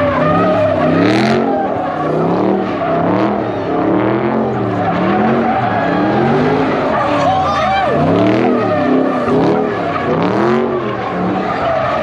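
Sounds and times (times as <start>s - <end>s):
car engine revving: 0.0s - 12.0s
tyres squealing on pavement: 0.0s - 12.0s.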